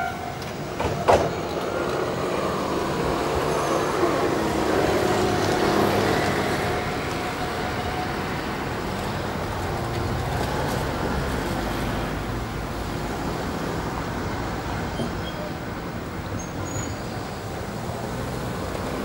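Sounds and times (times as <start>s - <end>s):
tram tone: 0.0s - 9.7s
tram wheels rumbling: 0.0s - 19.0s.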